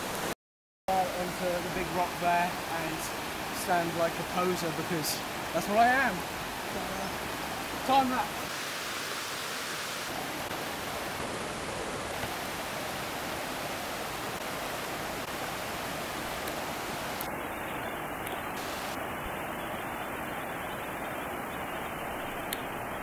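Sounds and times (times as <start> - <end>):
river rushing over rocks: 0.9 - 23.0.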